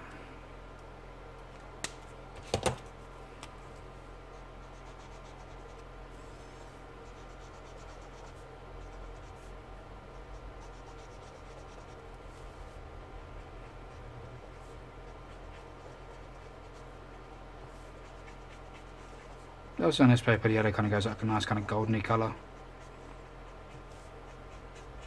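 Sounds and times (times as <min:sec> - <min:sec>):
marker scratching on paper: 0:04.3 - 0:12.8, 0:13.4 - 0:19.5, 0:21.6 - 0:25.0.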